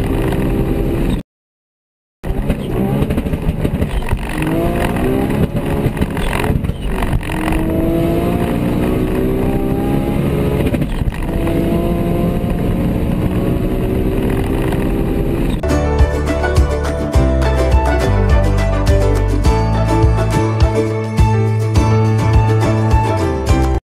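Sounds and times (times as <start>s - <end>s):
car engines accelerating: 2.3s - 23.8s.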